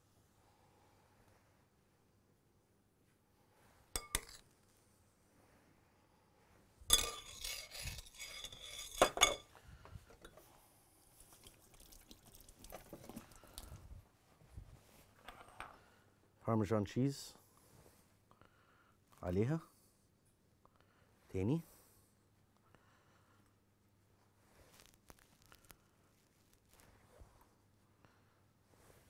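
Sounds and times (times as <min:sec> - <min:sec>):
spoon clinking against glass bowl: 0:04.0 - 0:04.4, 0:06.9 - 0:09.4.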